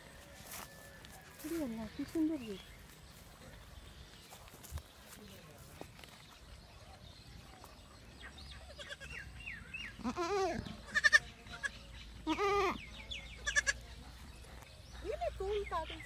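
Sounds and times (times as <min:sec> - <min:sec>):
goat bleating: 0:08.7 - 0:09.2, 0:10.0 - 0:12.8, 0:13.4 - 0:13.8.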